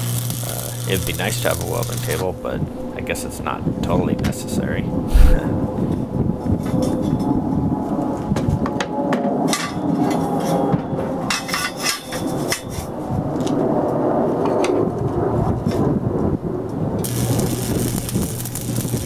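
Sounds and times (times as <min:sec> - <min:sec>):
welding arc crackling: 0:00.0 - 0:02.2, 0:17.0 - 0:19.0
low hum: 0:05.0 - 0:05.9.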